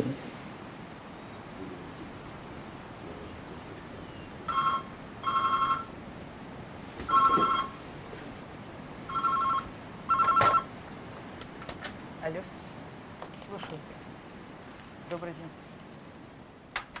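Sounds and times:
two-tone electronic ringing: 0:04.5 - 0:05.9, 0:07.1 - 0:07.8, 0:09.1 - 0:10.7.

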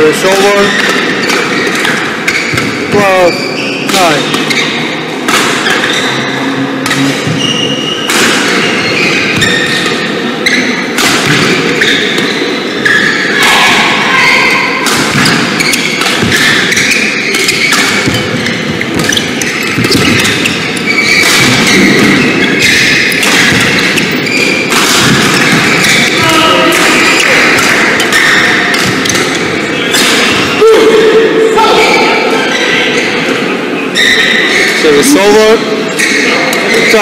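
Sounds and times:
racket striking shuttlecock: 0:00.3 - 0:02.8, 0:03.9 - 0:06.1, 0:06.8 - 0:10.2, 0:14.8 - 0:30.4.

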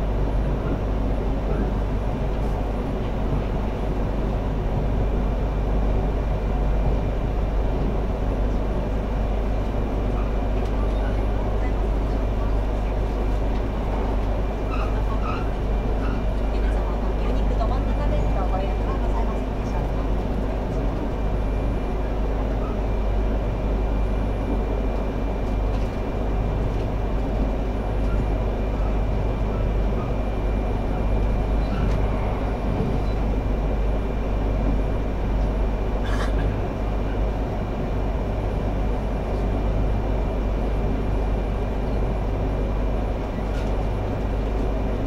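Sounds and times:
train running rumble: 0:00.0 - 0:45.0.

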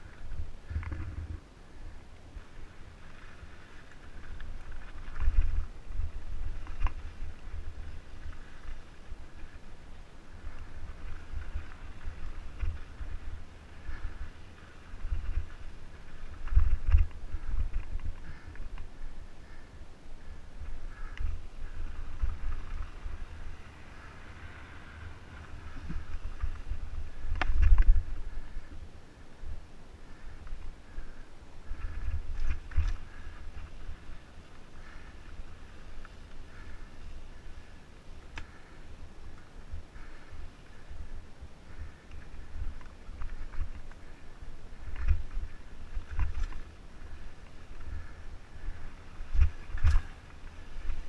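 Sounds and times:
wind rumble on microphone: 0:00.0 - 0:51.0
bike rattling over rock: 0:02.9 - 0:09.6, 0:20.9 - 0:28.6, 0:31.7 - 0:34.0, 0:41.8 - 0:51.0.

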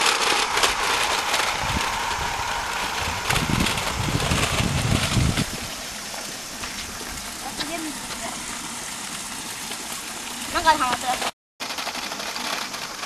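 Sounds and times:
low rumble: 0:00.0 - 0:08.5
toy car electric motor and gears: 0:00.0 - 0:08.7, 0:09.6 - 0:13.0.

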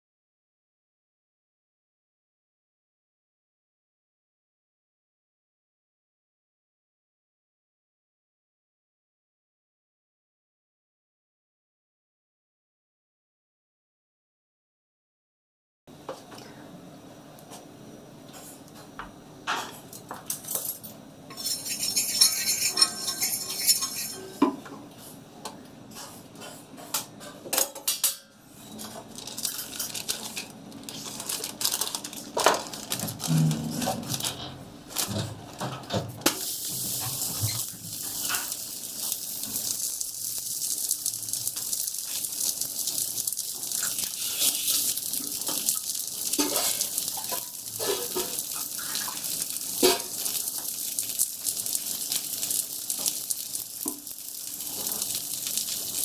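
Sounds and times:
flatbread sizzling with pops: 0:36.2 - 0:56.0.

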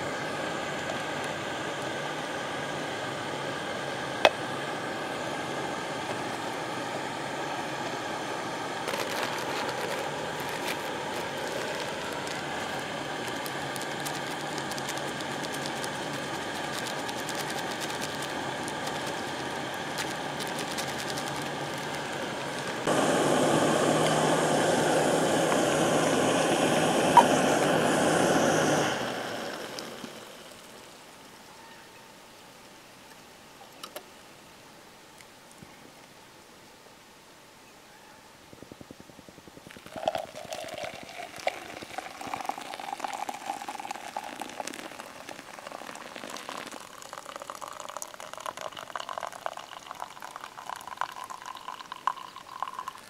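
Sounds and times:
camping stove burner hissing: 0:00.0 - 0:31.0, 0:39.6 - 0:53.0
coffee grounds poured from bag: 0:08.8 - 0:23.0, 0:39.7 - 0:53.0.

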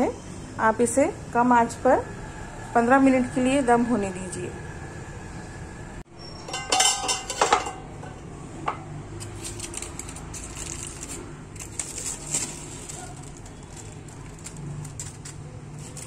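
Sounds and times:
metal cookware clattering: 0:06.4 - 0:10.6
aluminium foil crinkling: 0:09.2 - 0:16.0.

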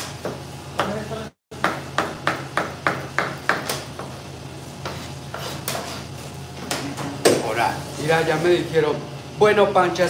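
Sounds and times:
knife chopping on cutting board: 0:00.0 - 0:04.2.

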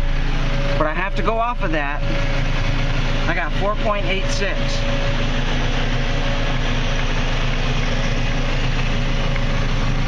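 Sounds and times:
diesel engine idling: 0:00.0 - 0:10.0.

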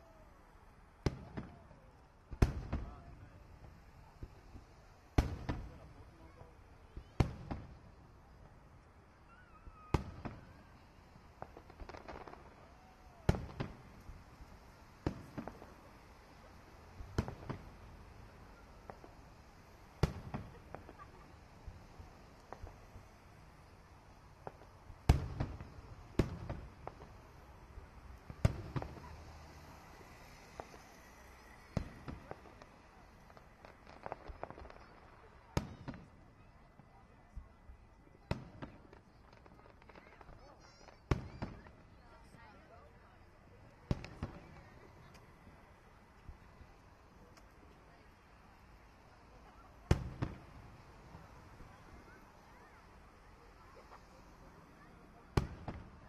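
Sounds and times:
firework shells bursting with booms: 0:01.0 - 0:16.2, 0:16.8 - 0:23.7, 0:24.4 - 0:36.2, 0:38.2 - 0:42.0, 0:49.5 - 0:51.8, 0:55.3 - 0:56.0
small firework pops: 0:01.0 - 0:56.0.

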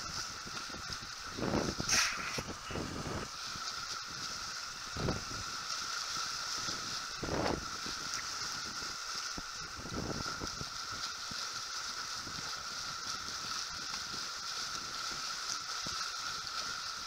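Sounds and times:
wind gusts on microphone: 0:00.0 - 0:05.7, 0:06.5 - 0:11.0
water rushing along boat hull: 0:00.0 - 0:17.0.

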